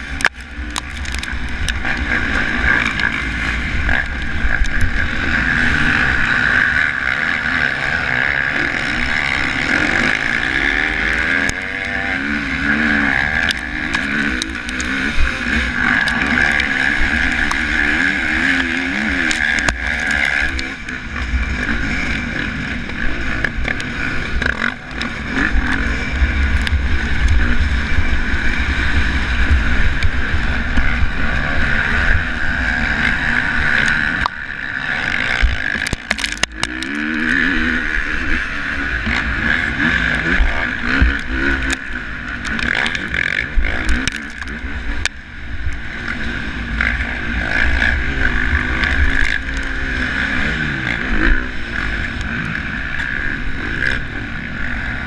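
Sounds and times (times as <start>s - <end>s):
motocross bike engine revving: 0.0s - 55.0s
wind rumble on microphone: 8.7s - 36.8s.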